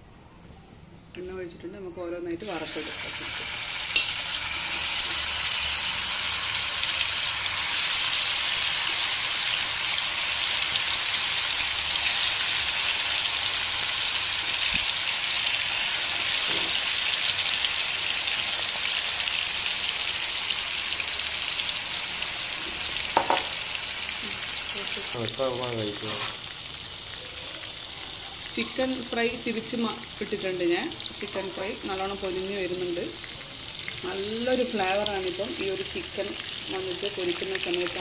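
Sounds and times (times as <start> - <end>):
chicken deep-frying in hot oil: 2.4 - 38.0.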